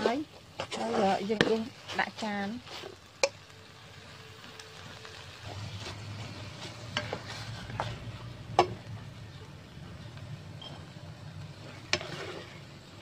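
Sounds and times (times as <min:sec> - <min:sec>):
spatula scraping in frying pan: 0:00.0 - 0:03.4, 0:05.4 - 0:08.8, 0:10.6 - 0:13.0
light sizzle of hot pan: 0:00.0 - 0:13.0.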